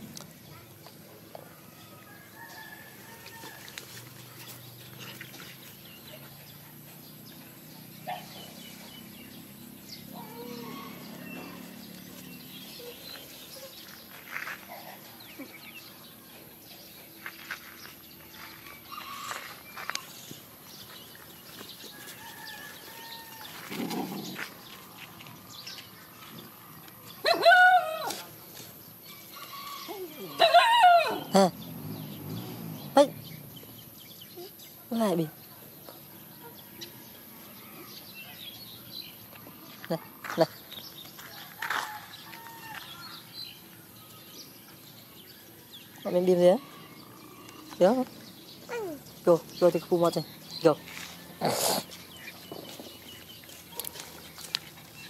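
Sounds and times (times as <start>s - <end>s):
faint outdoor sounds: 0.0s - 55.0s
dog barking: 8.1s - 8.4s.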